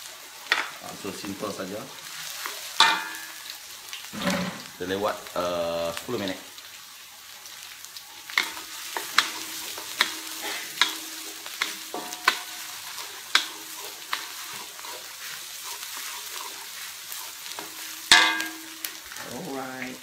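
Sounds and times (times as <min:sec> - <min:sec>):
shallots sizzling in oil: 0:00.0 - 0:20.0
spatula clattering in a wok: 0:02.8 - 0:03.4, 0:08.4 - 0:18.9
wooden spatula scraping a wok: 0:04.1 - 0:04.8, 0:08.3 - 0:19.2.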